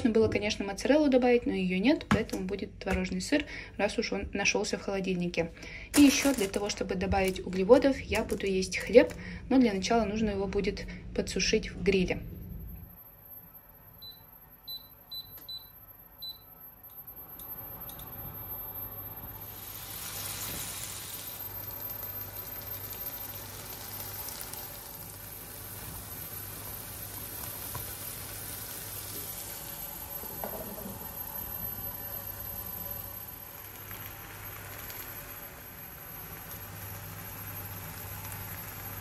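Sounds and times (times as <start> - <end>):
electric hob beeping: 12.7 - 39.0
vegetables sizzling in a frying pan: 19.2 - 39.0.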